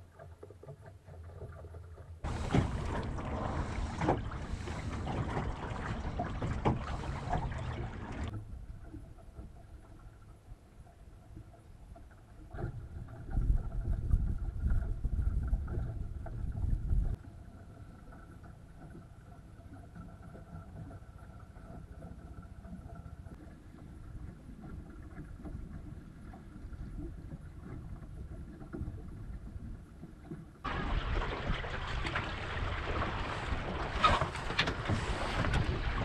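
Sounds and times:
water running along a hull: 0.0s - 36.0s
wind buffeting the microphone: 2.2s - 8.8s, 13.1s - 17.2s, 30.7s - 36.0s.

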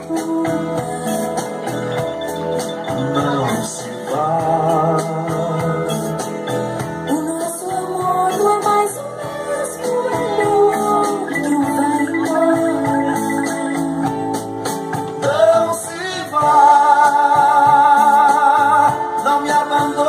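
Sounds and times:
music with steady beat: 0.0s - 20.0s
man singing into microphone: 2.9s - 6.4s, 15.2s - 20.0s.

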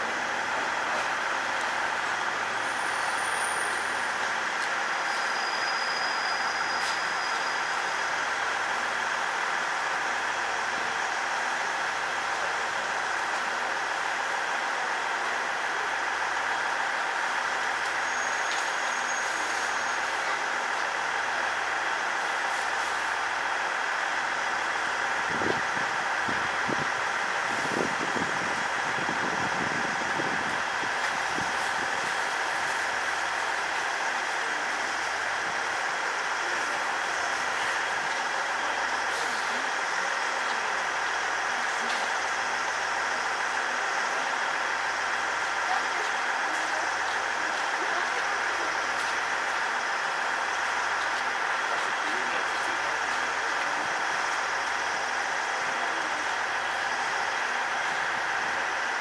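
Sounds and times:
distant electric train humming: 0.0s - 59.0s.

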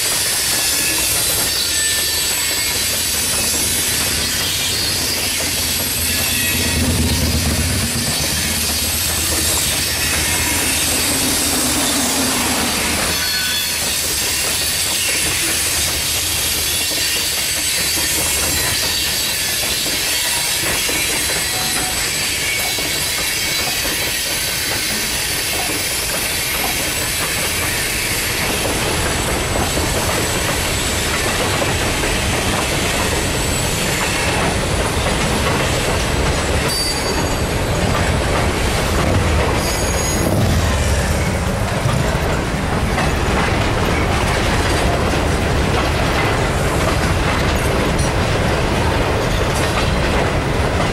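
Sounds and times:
clickety-clack over rail joints: 0.0s - 50.9s
train wheels rumbling on rails: 0.0s - 50.9s
wheel squeal: 0.1s - 7.1s, 7.9s - 28.6s, 36.6s - 37.6s, 39.5s - 41.5s
low hum: 6.1s - 12.8s.

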